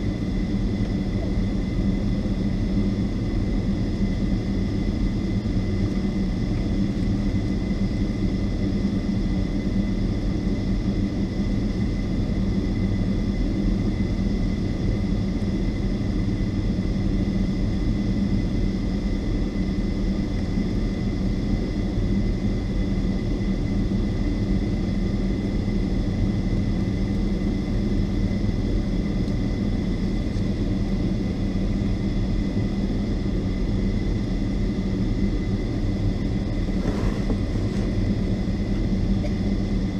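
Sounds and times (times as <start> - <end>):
jet engines idling in cabin: 0.0 - 39.9.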